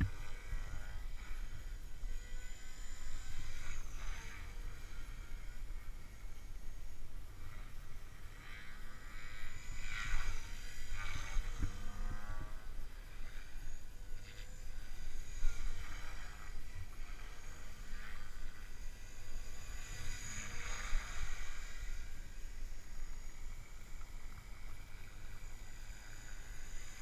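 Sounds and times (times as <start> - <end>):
model helicopter motor whine: 0.0 - 27.0
wind rumbling on microphone: 9.8 - 13.5.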